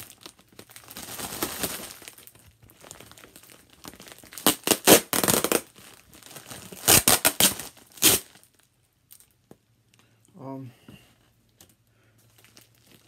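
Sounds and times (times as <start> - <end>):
packaging crackling: 0.0 - 9.4, 12.3 - 13.0.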